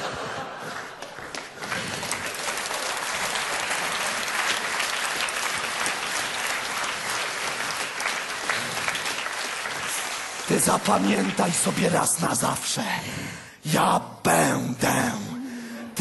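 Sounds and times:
audience applause: 0.0s - 12.2s.

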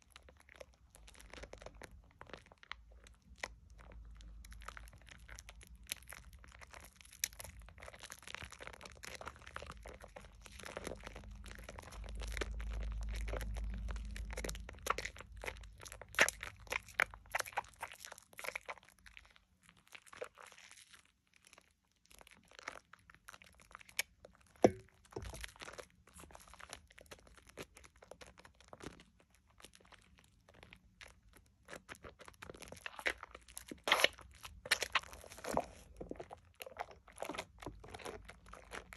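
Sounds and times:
soap lather squelching: 0.2s - 38.9s
low rumble: 10.7s - 15.5s.

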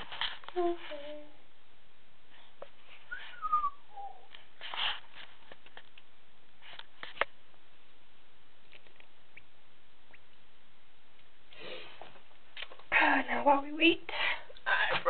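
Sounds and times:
person whistling: 3.1s - 4.3s.

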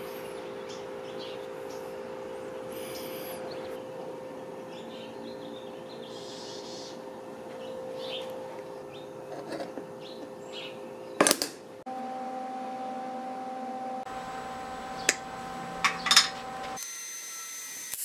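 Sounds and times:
birds chirping: 0.0s - 11.2s, 14.2s - 16.8s
low hum: 0.0s - 17.6s
steel parts clicking and clanking: 15.8s - 16.8s.

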